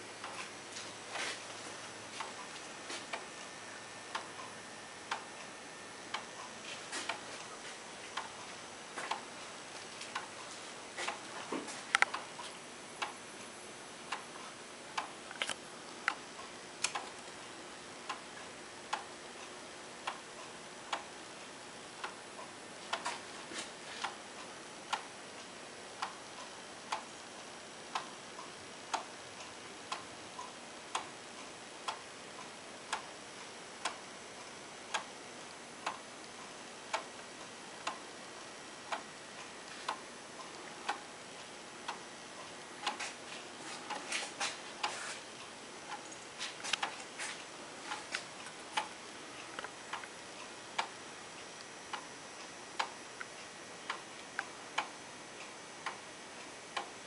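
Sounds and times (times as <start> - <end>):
clock ticking: 41.8 - 43.2, 47.8 - 52.1, 52.7 - 56.0.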